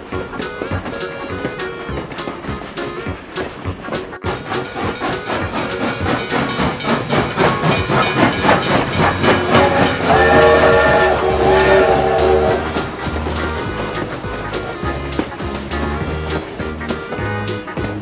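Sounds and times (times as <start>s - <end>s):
rhythmic steam train chuffing: 0.0s - 18.0s
steam whistle: 7.4s - 16.3s.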